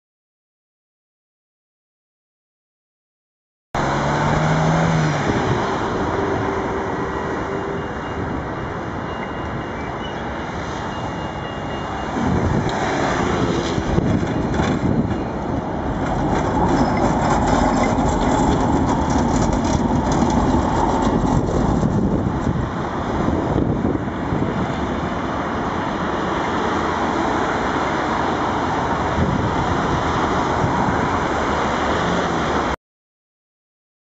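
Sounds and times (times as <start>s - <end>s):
tram motors humming: 3.8s - 28.4s
street traffic: 3.8s - 32.8s.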